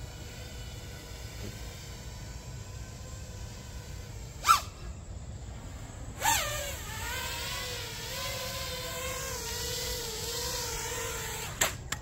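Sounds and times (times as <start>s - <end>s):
drone motors whining: 0.0s - 12.0s
drone landing tap: 11.5s - 12.0s.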